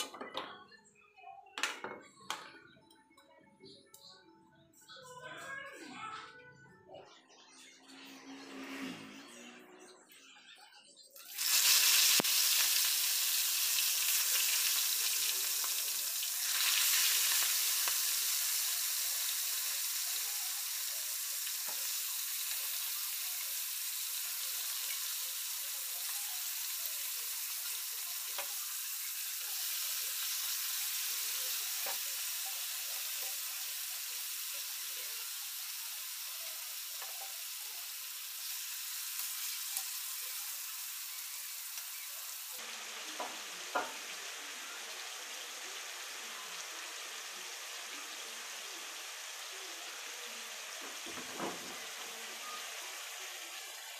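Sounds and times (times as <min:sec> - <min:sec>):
meat frying in hot oil: 0:11.2 - 0:53.9.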